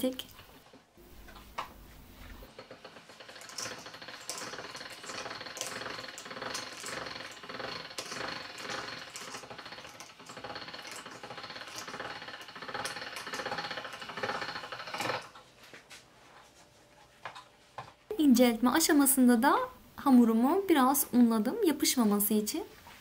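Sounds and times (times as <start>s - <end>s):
pasta machine rattling clatter: 2.4s - 15.4s.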